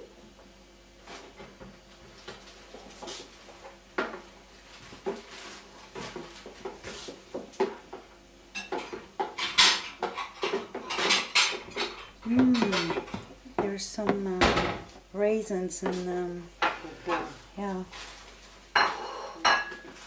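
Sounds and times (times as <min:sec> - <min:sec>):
dishes knocking and clinking: 0:08.6 - 0:14.9, 0:18.7 - 0:20.0.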